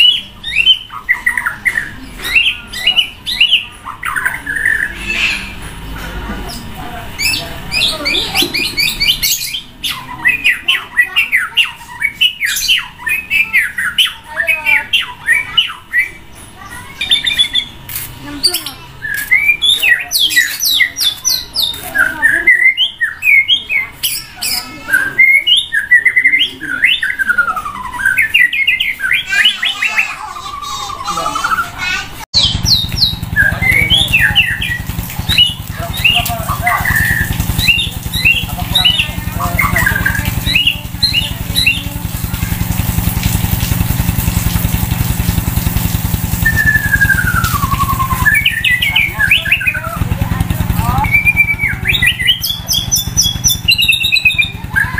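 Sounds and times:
harsh rasping bird notes: 0.0s - 23.2s, 26.8s - 54.9s
songbird singing: 0.0s - 54.9s
engine idling: 32.3s - 54.9s
bird singing whistled phrases: 32.4s - 41.9s, 46.3s - 54.9s.

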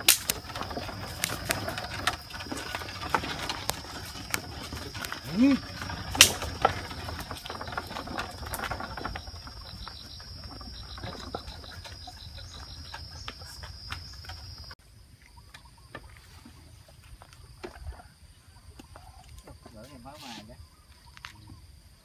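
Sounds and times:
wooden cart wheels knocking: 0.0s - 14.8s
high insect drone: 0.0s - 15.9s
pulsing insect or bird call: 0.0s - 22.0s.

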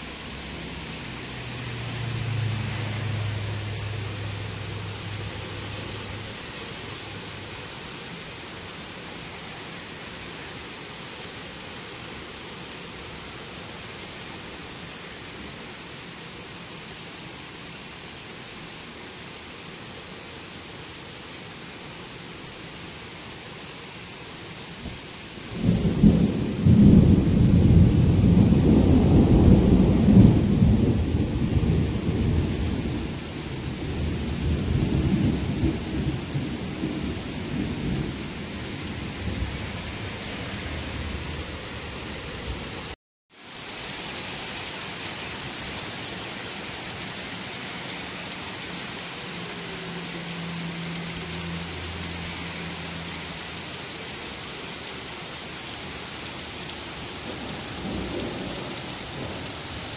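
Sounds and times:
rain hissing: 0.0s - 59.9s
thunderclap and rumble: 25.6s - 41.4s, 57.2s - 59.9s.

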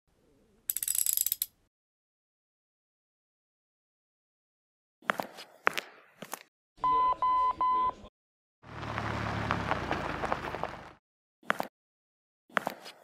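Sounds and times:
short electronic beeps: 6.8s - 8.1s.

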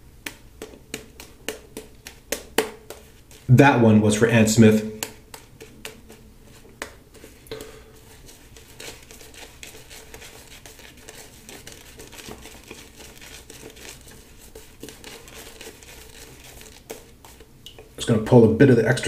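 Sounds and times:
shaving brush swishing lather: 8.0s - 17.5s.

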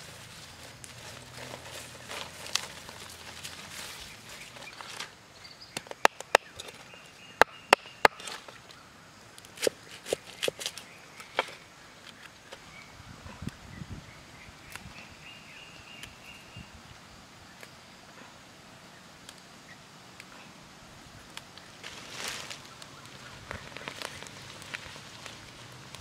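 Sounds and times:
leaves and grass rustling: 0.0s - 26.0s.

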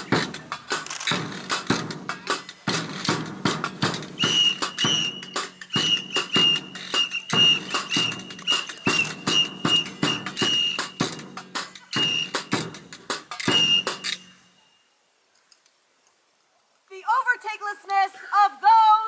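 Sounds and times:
drums and percussion: 0.0s - 14.4s
high whistle held notes: 4.2s - 11.2s, 11.9s - 12.6s, 13.4s - 14.9s.

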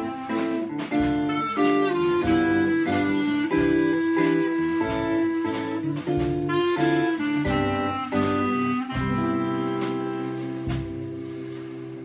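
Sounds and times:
clarinet melody: 0.0s - 12.0s
strummed small banjo: 0.0s - 12.0s.

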